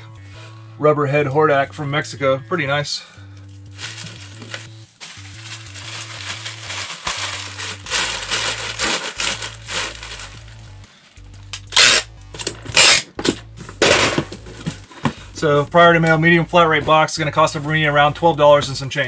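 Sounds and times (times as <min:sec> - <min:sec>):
background music: 0:00.0 - 0:19.0
plastic wrapping crinkling: 0:03.7 - 0:10.8
packing tape rasping from dispenser: 0:03.8 - 0:10.6, 0:11.6 - 0:13.4.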